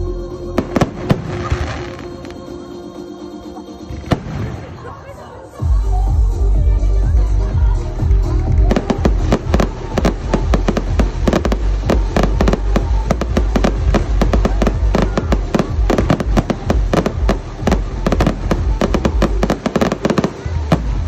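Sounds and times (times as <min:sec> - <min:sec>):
fireworks bursting: 0:00.6 - 0:02.8, 0:03.8 - 0:05.3, 0:08.1 - 0:21.0.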